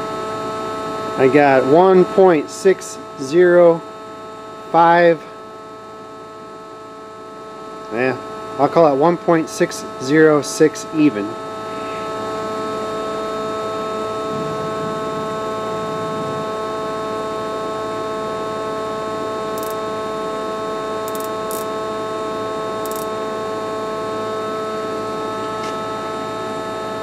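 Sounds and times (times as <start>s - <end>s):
machine humming steady tones: 0.0s - 27.0s
faint high ticks: 19.6s - 19.8s, 22.8s - 23.1s.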